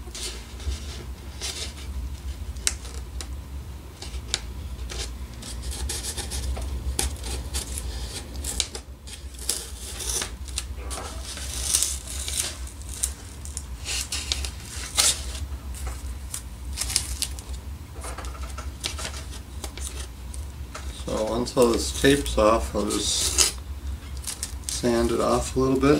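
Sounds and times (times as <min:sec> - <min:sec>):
tape peeling off: 0:04.0 - 0:22.2.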